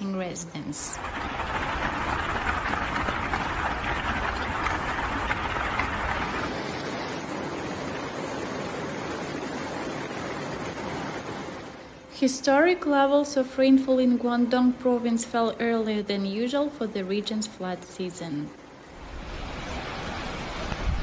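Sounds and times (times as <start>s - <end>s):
floodwater rushing: 0.6s - 13.1s, 18.6s - 21.0s.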